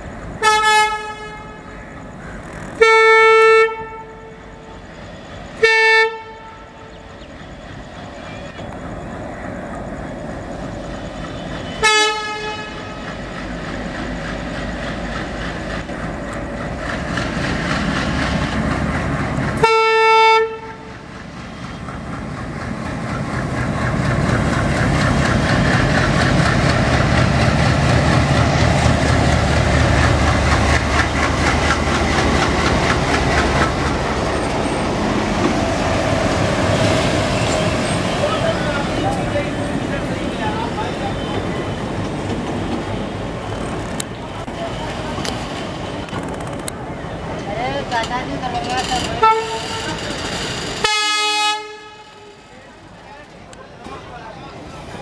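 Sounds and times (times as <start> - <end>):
locomotive engine: 0.0 - 55.0
locomotive horn blasts: 0.4 - 1.6, 2.8 - 4.5, 5.6 - 6.8, 11.8 - 13.0, 19.6 - 20.9, 49.2 - 50.0, 50.8 - 52.5
wheels clicking over rail joints: 46.0 - 50.8.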